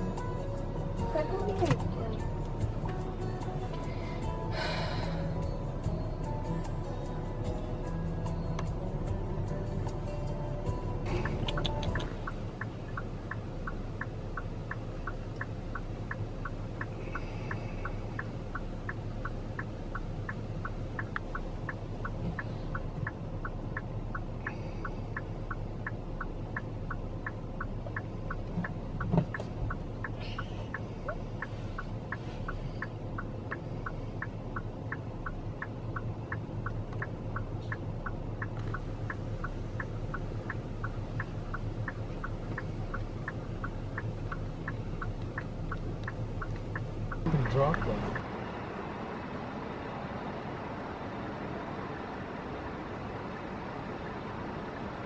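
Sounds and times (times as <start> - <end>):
car indicator clicking: 0.0 - 4.0, 8.2 - 9.2, 9.8 - 48.3
engine humming low: 0.0 - 55.0.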